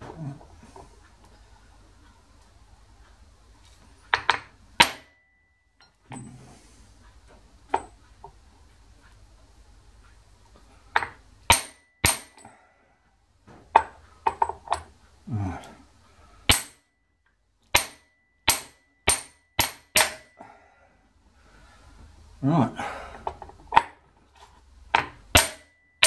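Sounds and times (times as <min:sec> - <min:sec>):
hammer striking steel: 0:04.2 - 0:05.2, 0:11.0 - 0:12.4, 0:16.5 - 0:16.8, 0:17.7 - 0:20.4, 0:25.3 - 0:25.8.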